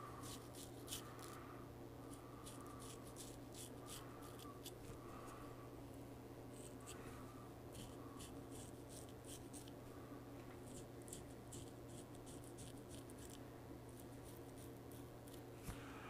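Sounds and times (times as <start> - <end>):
steady low hum: 0.0 - 16.0
razor scraping stubble: 0.2 - 1.4, 2.1 - 5.0, 7.7 - 9.8, 10.6 - 15.8.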